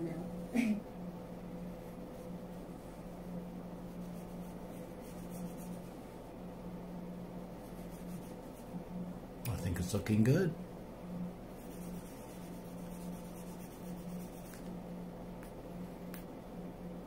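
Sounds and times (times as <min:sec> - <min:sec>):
low room hum: 0:00.0 - 0:17.0
paintbrush scratchy strokes: 0:01.7 - 0:06.2, 0:07.5 - 0:08.8, 0:11.5 - 0:14.7.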